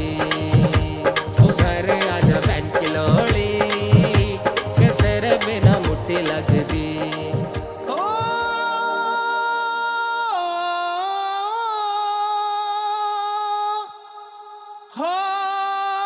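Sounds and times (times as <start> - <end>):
music beat: 0.0 - 9.0.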